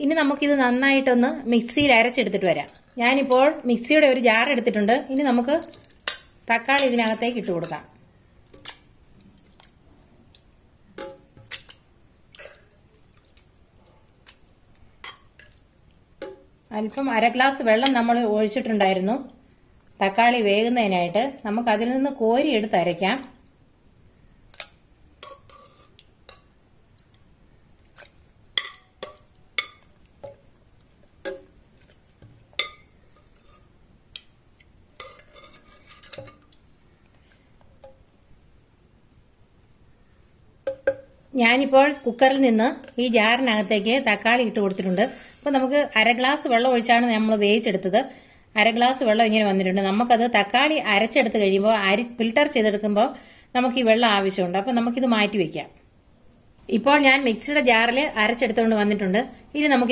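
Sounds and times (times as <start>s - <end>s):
soft squelches of pulp: 8.3s - 16.7s, 23.4s - 38.0s
spoon clinking against metal: 32.6s - 32.9s.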